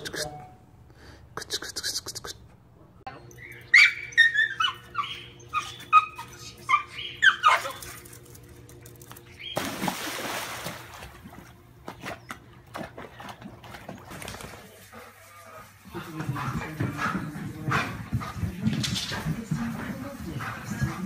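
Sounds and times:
small dog whining and yelping: 0:03.4 - 0:08.0
water splashing: 0:09.6 - 0:12.1.

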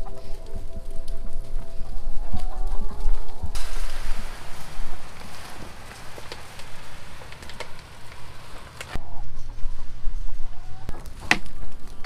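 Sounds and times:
chickens clucking: 0:00.0 - 0:12.0
feed pellets pouring into trough: 0:03.6 - 0:08.9.

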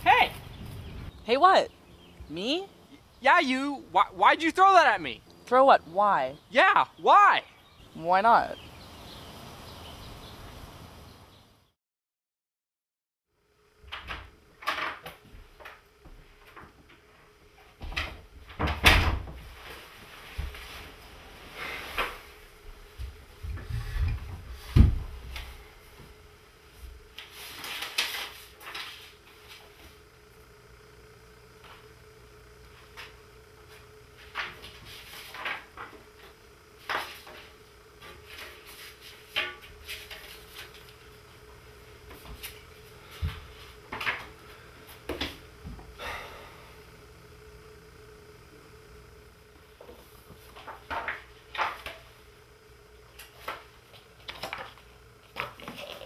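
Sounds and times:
faint steady hum: 0:00.0 - 0:11.7, 0:13.3 - 0:56.0
knocks and rustles: 0:23.0 - 0:25.5.

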